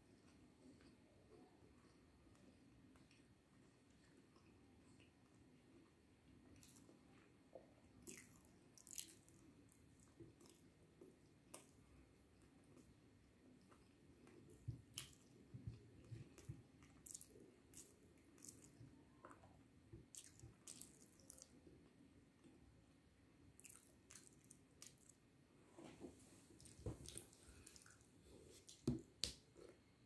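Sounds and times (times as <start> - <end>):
chewing and mouth smacks: 8.0 - 11.8, 12.4 - 21.8, 23.6 - 25.2, 26.5 - 29.8.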